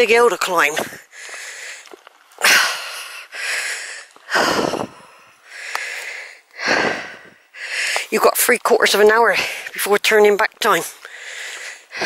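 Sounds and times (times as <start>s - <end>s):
heavy breathing: 0.8s - 8.1s, 11.0s - 12.0s.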